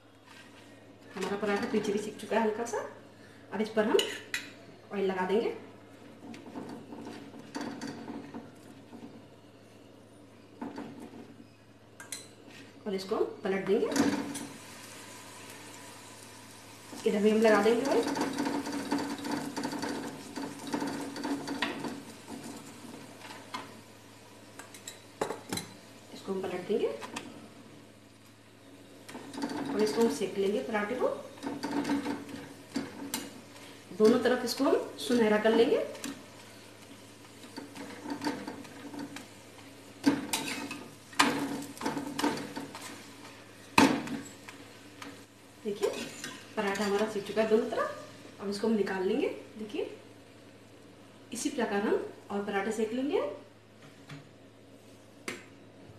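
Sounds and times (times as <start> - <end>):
metal spatula scraping griddle: 40.1 - 43.3.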